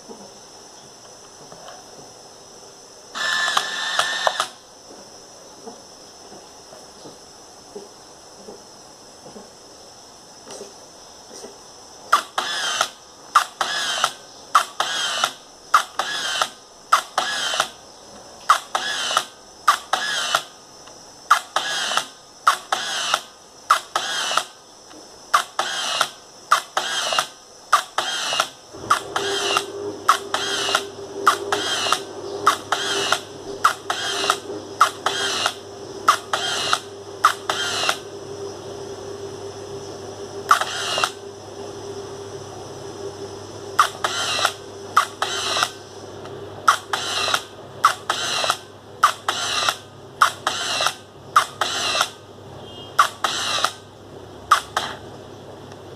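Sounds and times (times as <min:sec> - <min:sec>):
camera film advance whir: 0:03.2 - 0:04.6, 0:12.3 - 0:17.8, 0:25.6 - 0:38.4, 0:40.4 - 0:41.3, 0:43.8 - 0:45.8, 0:46.7 - 0:52.2
camera shutter click: 0:03.2 - 0:04.6, 0:25.4 - 0:38.0, 0:46.7 - 0:52.2, 0:53.0 - 0:53.8.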